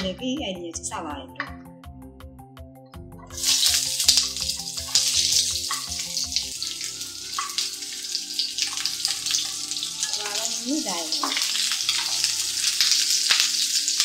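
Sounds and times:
onion sizzling in hot oil: 0:03.4 - 0:14.0.

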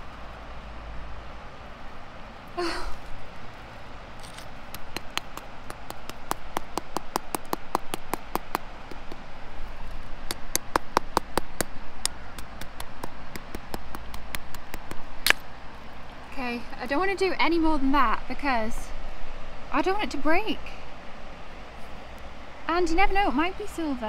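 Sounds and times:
stone tapping on rust: 0:04.2 - 0:09.3, 0:10.2 - 0:11.7.

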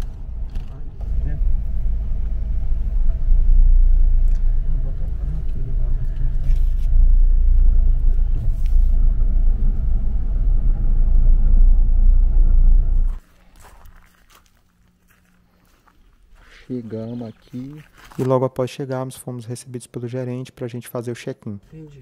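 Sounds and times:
car engine and tyre rumble: 0:00.0 - 0:13.2.

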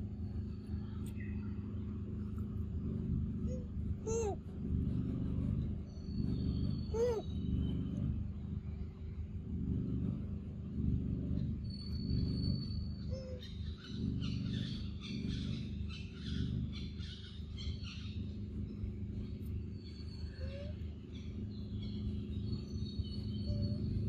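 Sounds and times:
low rumble: 0:00.0 - 0:17.0
birds chirping and whistling: 0:05.8 - 0:08.0, 0:11.6 - 0:24.0.

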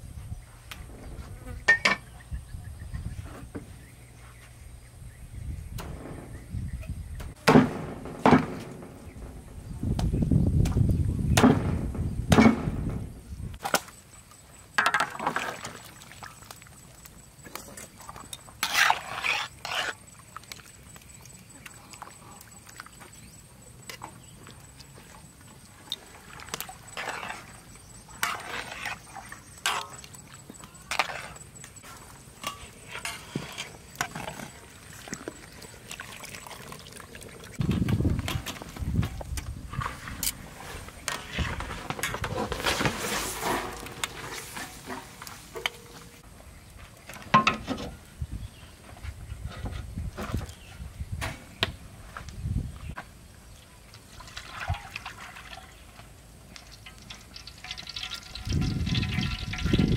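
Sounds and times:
small water splashes: 0:15.0 - 0:18.2, 0:34.2 - 0:37.6, 0:53.7 - 0:59.9.

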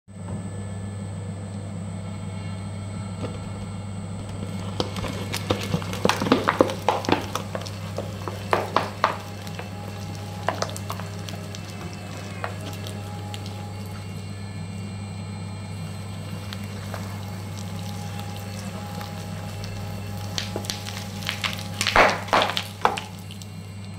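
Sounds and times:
shredder electric hum: 0:00.1 - 0:23.9
shredder tearing paper box: 0:04.3 - 0:14.3, 0:15.7 - 0:23.6.

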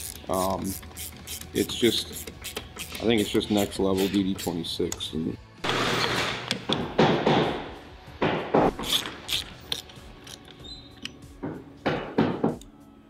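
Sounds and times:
cable and clamp handling noises: 0:00.0 - 0:06.8, 0:08.8 - 0:11.3.

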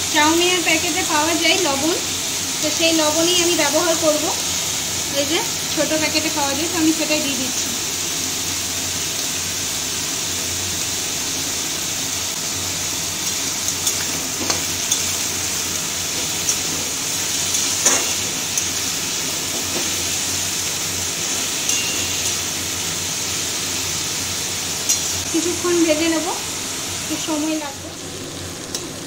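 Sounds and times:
vegetables sizzling in oil: 0:00.0 - 0:29.0
spatula scraping a metal pan: 0:21.5 - 0:22.5.

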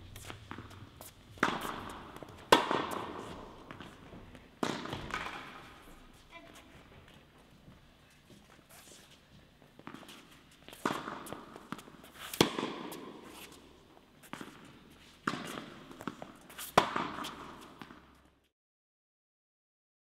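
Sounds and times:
tennis balls struck by rackets: 0:00.0 - 0:06.2, 0:09.6 - 0:18.3.

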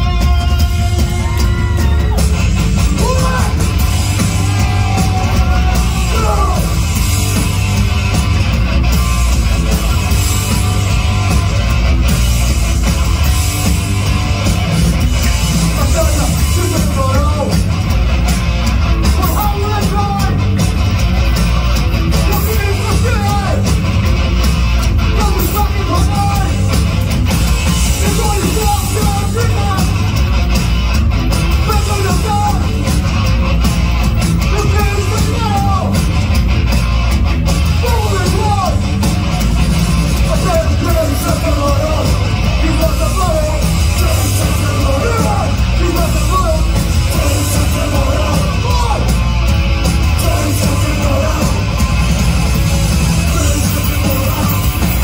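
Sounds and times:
shouted lead vocal: 0:00.0 - 0:07.6, 0:15.4 - 0:17.8, 0:18.9 - 0:20.6, 0:22.0 - 0:23.9, 0:24.9 - 0:26.9, 0:27.5 - 0:30.2, 0:31.4 - 0:33.1, 0:34.2 - 0:36.2, 0:37.6 - 0:39.2, 0:40.1 - 0:55.0
bass guitar: 0:00.0 - 0:55.0
drums: 0:00.0 - 0:55.0
electric guitar: 0:00.0 - 0:55.0.

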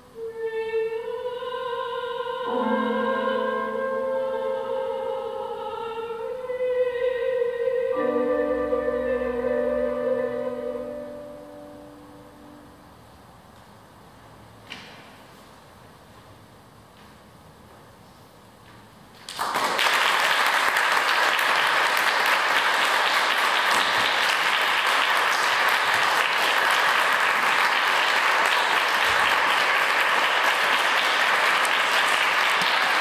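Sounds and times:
audience applause: 0:19.3 - 0:33.0.

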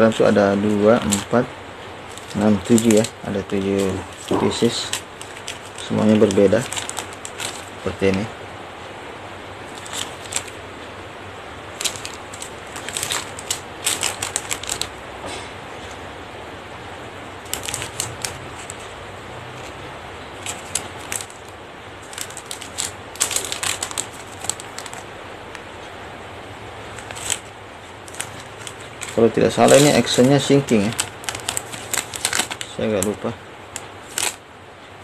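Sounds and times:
plastic packets crinkling: 0:00.0 - 0:08.3, 0:09.7 - 0:10.6, 0:11.6 - 0:15.0, 0:17.4 - 0:18.9, 0:19.6 - 0:25.6, 0:26.9 - 0:34.4.

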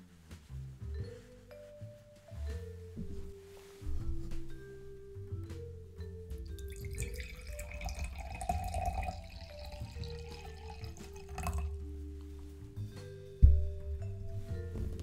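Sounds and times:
glass knock: 0:06.5 - 0:11.7
water pouring into a glass: 0:06.6 - 0:11.8.

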